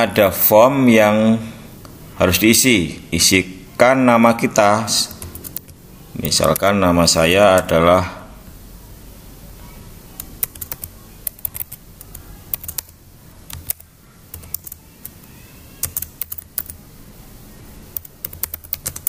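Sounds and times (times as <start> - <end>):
computer keyboard typing: 5.0 - 6.7, 10.2 - 16.8, 17.9 - 19.0.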